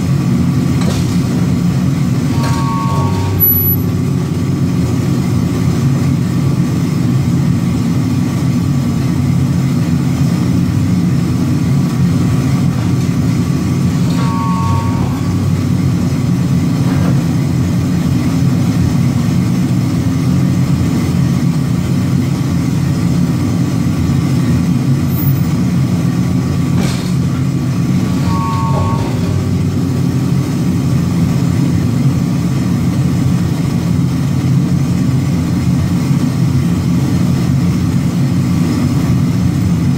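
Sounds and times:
forging press humming: 0.0 - 7.0, 9.7 - 21.1, 25.5 - 33.8
short whistle-like tones: 28.2 - 29.3.

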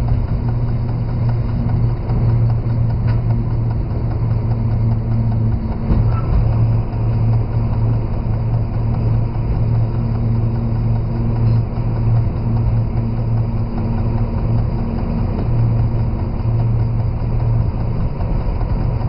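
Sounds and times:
locomotive diesel engine humming: 0.0 - 19.0.

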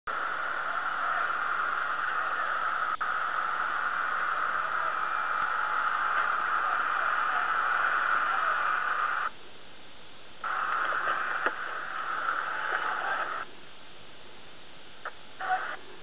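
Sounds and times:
static hiss: 0.1 - 16.0
faint clicks: 10.5 - 13.4.

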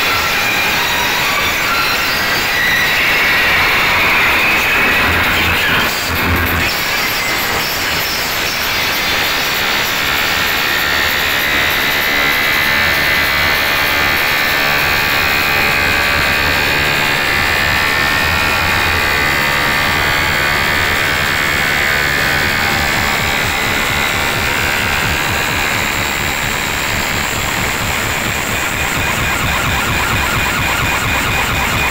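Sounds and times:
loud distorted loudspeaker music: 0.0 - 31.9
deep bass pulsing: 4.8 - 6.7, 14.9 - 31.9.

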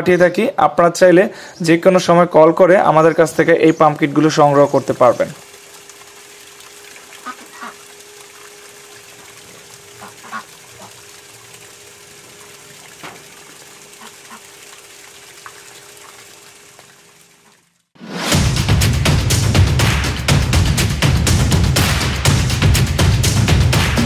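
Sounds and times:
faint pump hum: 1.1 - 17.8
water jet splashing into pond: 2.7 - 20.4.

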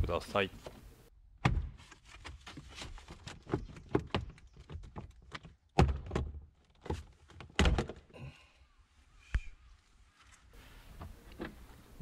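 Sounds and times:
loud thunks: 1.4 - 1.8, 5.8 - 8.1.

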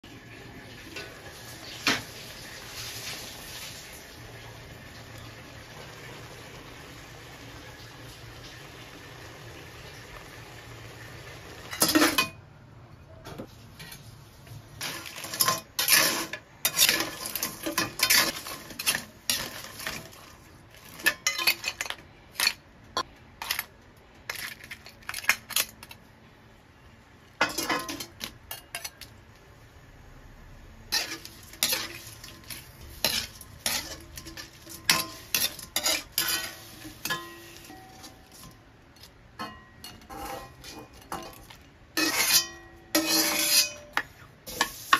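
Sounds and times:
metal ladle clinking on wok: 31.0 - 38.6.

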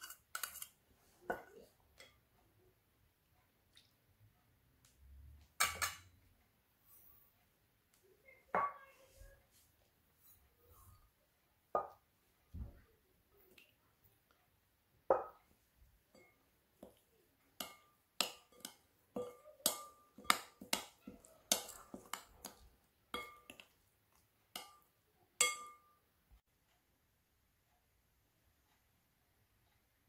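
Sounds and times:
spoon and bowls clinking on glass: 0.0 - 0.7, 5.6 - 6.2, 17.6 - 23.7, 24.6 - 25.9.

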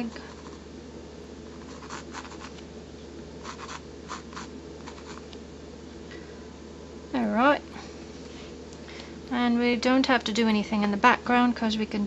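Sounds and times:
steady low hum: 0.0 - 12.0
sketching tool scratching: 1.6 - 2.6, 3.4 - 5.2.

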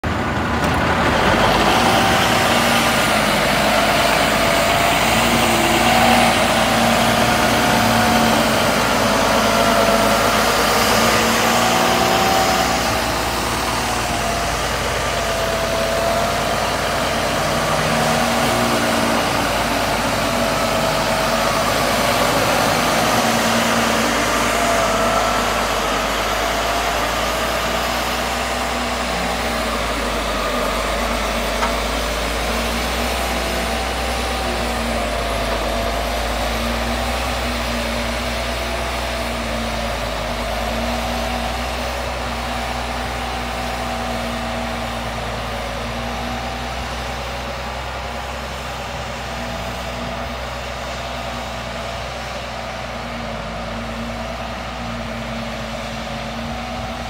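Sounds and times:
diesel engine running under load: 0.0 - 57.0.

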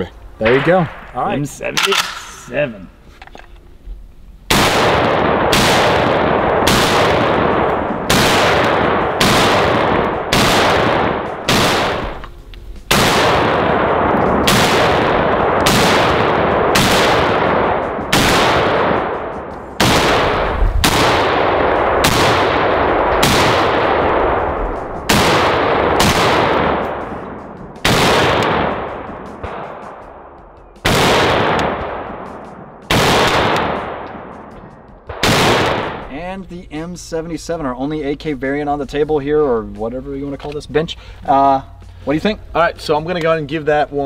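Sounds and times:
rifle shots with echo: 0.4 - 2.4, 4.5 - 36.4.

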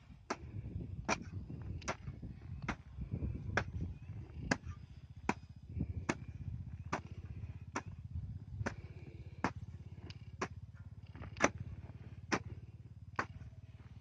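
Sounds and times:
steady low rumble: 0.0 - 14.0
hoe chopping into soil: 0.2 - 2.9, 4.4 - 8.0, 8.6 - 13.6.

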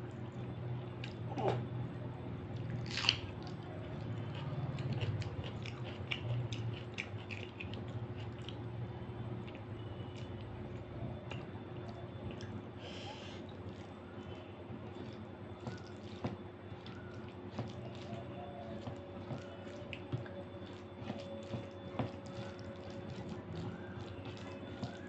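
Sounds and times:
person chewing wetly: 2.5 - 25.0
fingers mixing food on plate: 13.4 - 25.0.

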